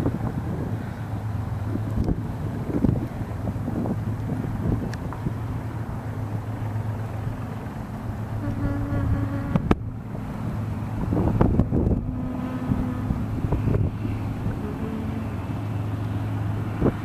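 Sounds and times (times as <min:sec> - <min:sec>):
low drone: 0:00.0 - 0:17.0
wind buffeting microphone: 0:00.0 - 0:17.0
buzzing hum: 0:08.3 - 0:10.0, 0:11.1 - 0:16.1.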